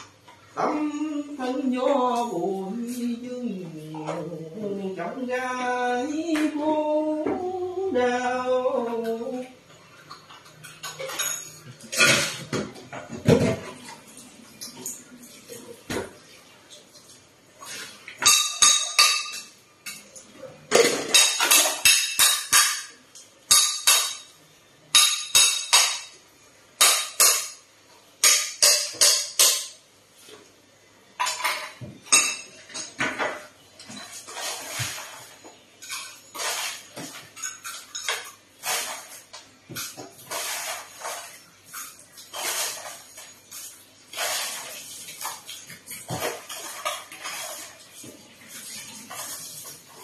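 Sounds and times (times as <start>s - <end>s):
dishes and cutlery clattering: 9.8s - 16.2s, 16.9s - 26.2s, 26.8s - 29.8s, 31.2s - 44.4s.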